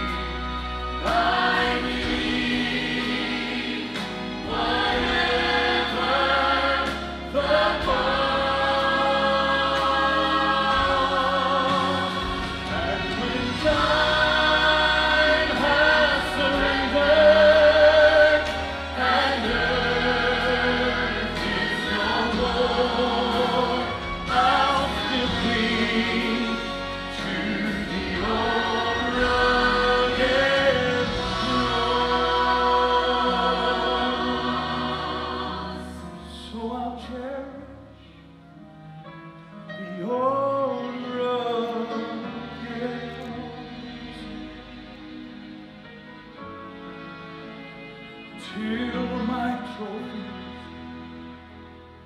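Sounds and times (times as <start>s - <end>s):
instrumental accompaniment: 0.0s - 36.5s
choir singing gospel: 0.0s - 37.7s, 39.9s - 45.8s.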